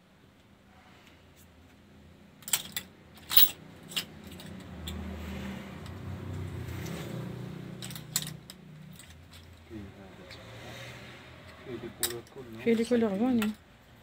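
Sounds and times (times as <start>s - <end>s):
clothes hangers clacking on rail: 2.4s - 5.0s.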